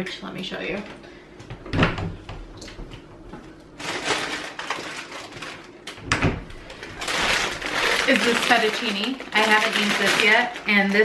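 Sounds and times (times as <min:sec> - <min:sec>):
rustling handling noise: 0:03.4 - 0:05.9, 0:06.6 - 0:11.0.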